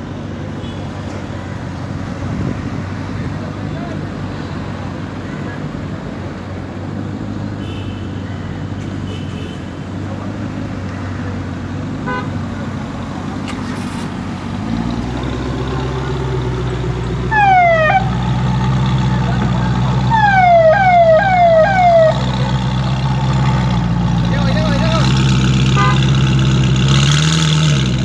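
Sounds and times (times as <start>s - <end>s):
car engine idling: 9.7s - 28.0s
deeper car engine passing: 11.5s - 28.0s
falling siren-like chirps: 17.3s - 18.6s, 20.0s - 22.3s.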